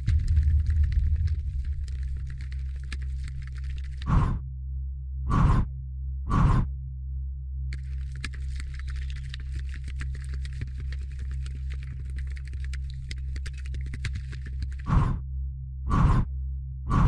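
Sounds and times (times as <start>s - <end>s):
dense irregular crackling: 0.0s - 4.1s, 7.7s - 14.9s
deep steady drone: 0.0s - 17.0s.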